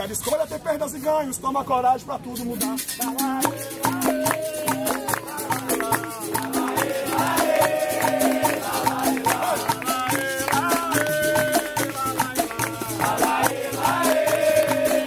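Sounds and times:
shaker rattle: 0:00.0 - 0:01.3, 0:02.2 - 0:15.0
berimbau: 0:02.2 - 0:15.0
hand drum: 0:02.4 - 0:15.0
group of voices singing: 0:03.0 - 0:15.0
rhythmic hand clapping: 0:03.0 - 0:15.0.

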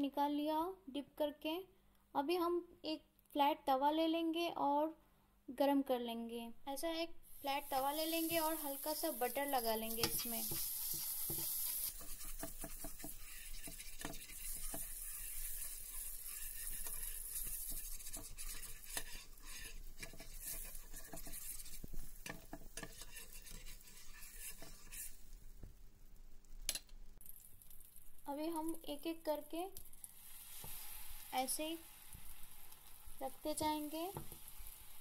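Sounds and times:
butter sizzling in a pan: 0:07.2 - 0:35.0
spatula scraping and tapping pan: 0:07.7 - 0:25.8, 0:30.4 - 0:31.2, 0:32.1 - 0:34.8.

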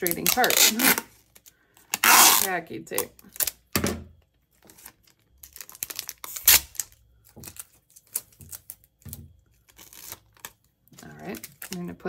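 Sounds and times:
packing tape ripping off roll: 0:00.0 - 0:03.8, 0:04.8 - 0:12.0
plastic bag crinkling: 0:04.3 - 0:12.0.

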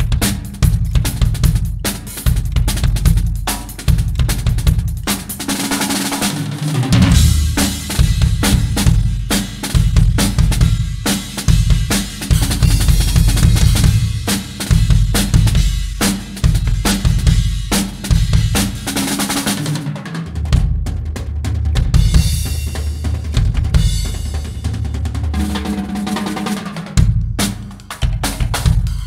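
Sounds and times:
bass drum: 0:00.0 - 0:05.5, 0:06.8 - 0:19.0, 0:20.3 - 0:26.2, 0:27.0 - 0:29.0
snare and tom strokes: 0:00.0 - 0:29.0
cymbal crashes: 0:06.2 - 0:08.4.

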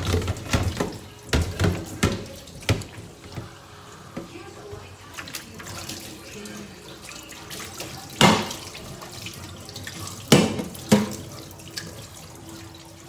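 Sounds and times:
tap running into metal sink: 0:00.0 - 0:03.6, 0:10.2 - 0:11.4.

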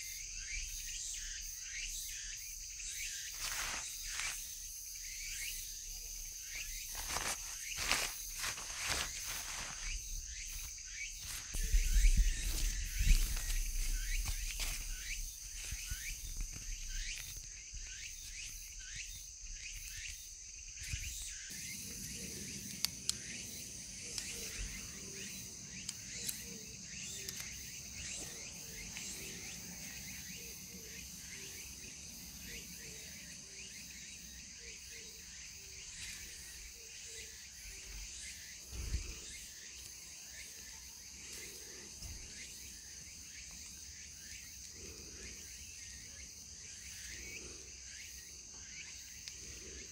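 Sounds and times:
crickets and insects chirring: 0:00.0 - 0:49.9.

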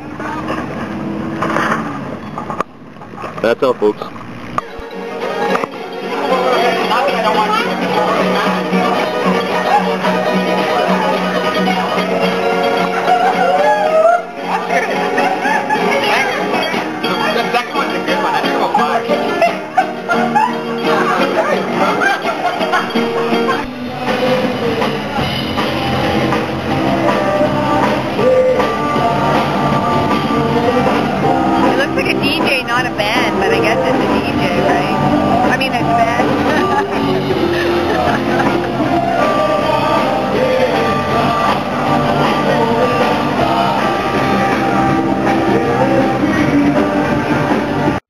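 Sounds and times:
rock music with drums and guitar: 0:04.6 - 0:48.0.

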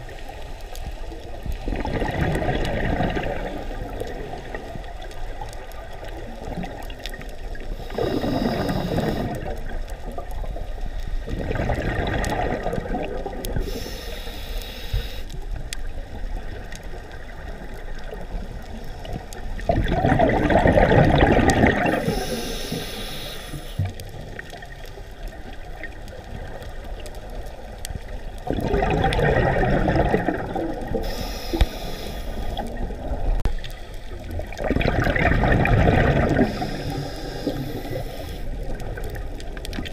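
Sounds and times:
gurgling exhaled bubbles: 0:01.0 - 0:10.6, 0:11.2 - 0:13.9, 0:15.9 - 0:22.8, 0:23.8 - 0:31.6, 0:32.3 - 0:39.9
regulator inhale hiss: 0:07.6 - 0:09.7, 0:10.4 - 0:11.4, 0:13.5 - 0:15.4, 0:21.9 - 0:24.0, 0:30.9 - 0:32.8, 0:36.4 - 0:38.8.

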